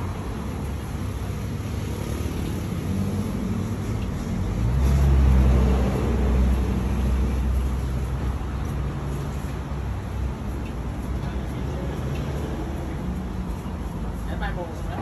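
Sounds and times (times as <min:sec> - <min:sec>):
steady traffic noise: 0:00.0 - 0:15.0
vehicle engine passing close: 0:01.6 - 0:07.8.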